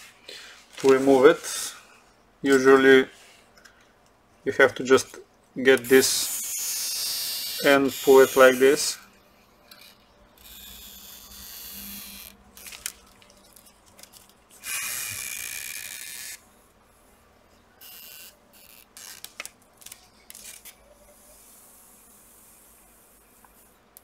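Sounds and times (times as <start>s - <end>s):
adhesive strip peeling: 17.8s - 20.8s.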